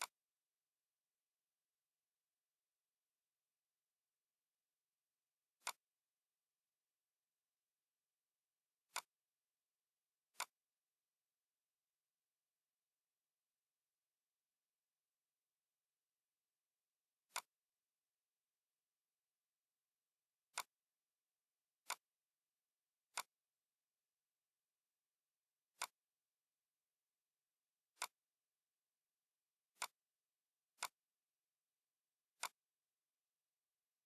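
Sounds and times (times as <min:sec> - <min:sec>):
computer mouse clicking: 0:05.6 - 0:06.0, 0:08.8 - 0:09.2, 0:10.3 - 0:10.7, 0:17.2 - 0:17.7, 0:20.5 - 0:20.8, 0:21.8 - 0:22.2, 0:23.1 - 0:23.4, 0:25.7 - 0:26.1, 0:27.9 - 0:28.3, 0:29.7 - 0:30.1, 0:30.7 - 0:31.1, 0:32.3 - 0:32.9.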